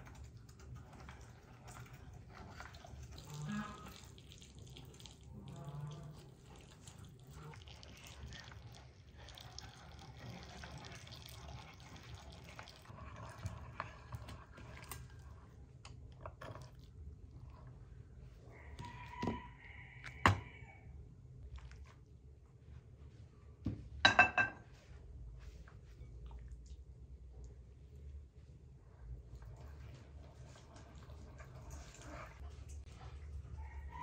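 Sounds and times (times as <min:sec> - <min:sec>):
water trickling and dripping: 0:00.0 - 0:12.9.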